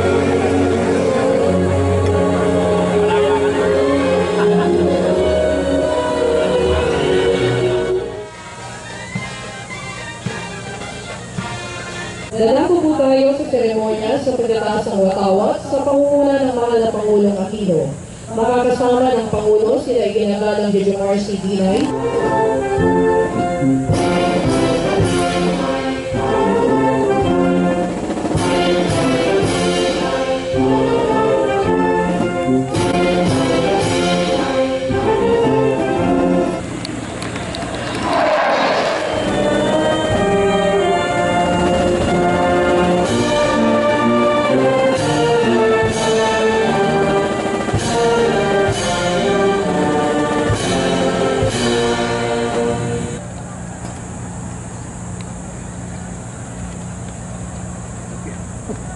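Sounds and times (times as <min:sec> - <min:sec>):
voices singing: 0:00.0 - 0:08.2, 0:29.2 - 0:31.4
brass band music: 0:00.0 - 0:12.6, 0:21.9 - 0:36.7, 0:37.8 - 0:53.2
drum and cymbal strikes: 0:23.8 - 0:31.0.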